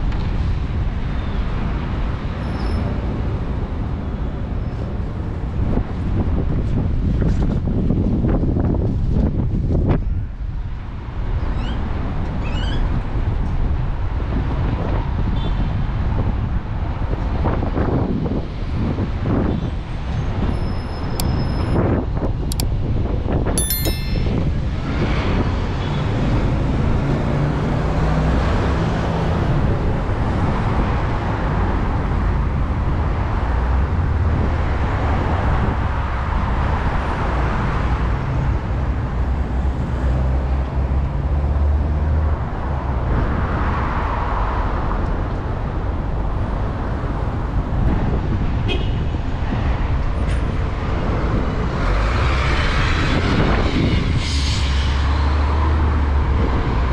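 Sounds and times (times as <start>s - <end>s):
vehicles passing: 24.0s - 56.9s
road traffic rumble: 24.3s - 56.9s.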